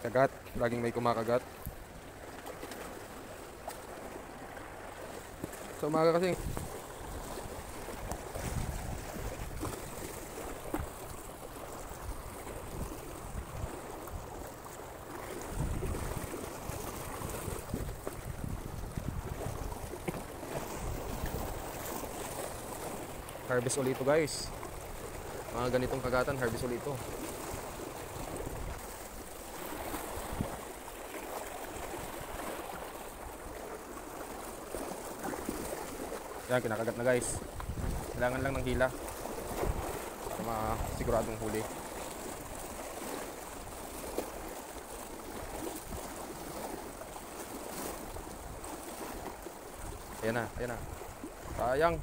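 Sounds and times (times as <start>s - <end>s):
small waves lapping: 0.0s - 52.0s
wind rumbling on microphone: 6.2s - 23.3s, 24.2s - 30.7s, 37.2s - 41.7s, 49.8s - 52.0s.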